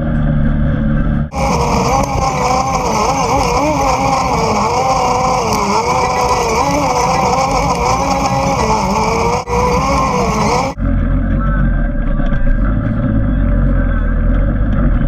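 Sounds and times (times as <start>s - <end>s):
off-road vehicle engine running: 0.0s - 15.0s.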